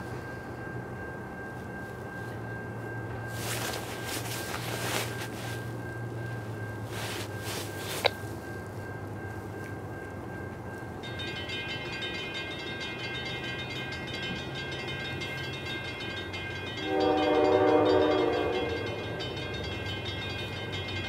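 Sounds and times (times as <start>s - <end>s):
steady high ringing: 0.0s - 21.0s
locomotive air horn: 16.8s - 19.2s.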